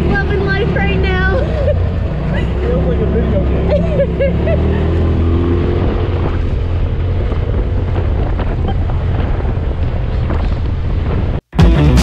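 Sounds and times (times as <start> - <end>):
wind buffeting microphone: 0.0 - 11.4
utv engine rumble: 0.0 - 12.0.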